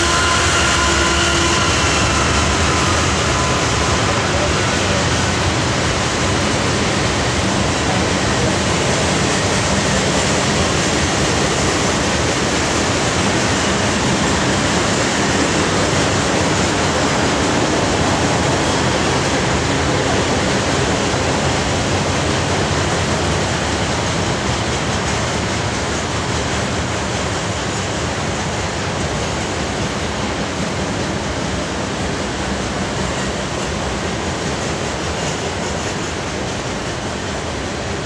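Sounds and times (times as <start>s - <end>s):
freight train rolling past: 0.0s - 38.0s.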